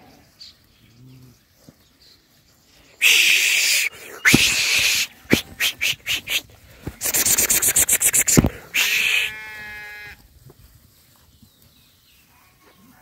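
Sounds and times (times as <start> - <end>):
rapid loud noisy pulses: 7.0 - 9.0
lamb bleating: 7.5 - 10.2.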